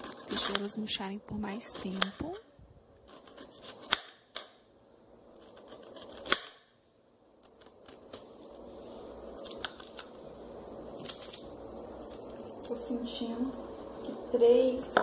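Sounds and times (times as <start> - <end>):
knife slicing onion: 0.0 - 2.4, 3.0 - 4.6, 5.3 - 6.8, 7.4 - 8.7.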